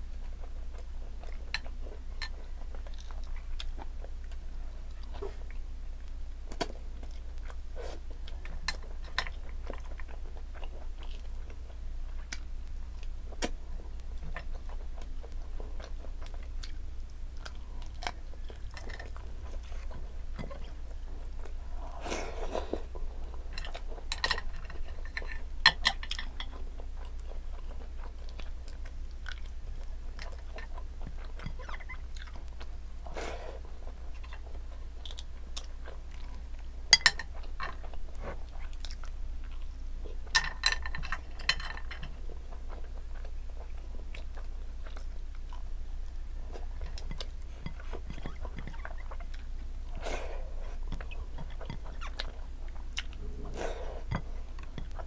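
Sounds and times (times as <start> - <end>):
person chewing food: 0.0 - 55.0
low hum: 49.1 - 55.0.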